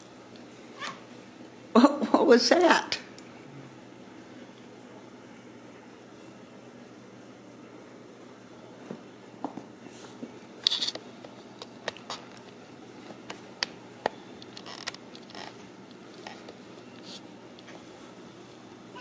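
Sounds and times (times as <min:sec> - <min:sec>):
claws scraping: 0:10.6 - 0:12.6, 0:14.4 - 0:17.3.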